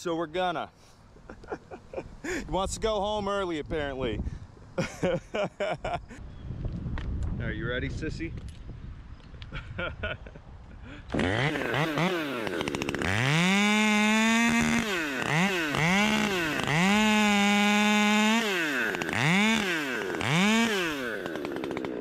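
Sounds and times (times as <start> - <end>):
chainsaw revving: 11.1 - 22.0.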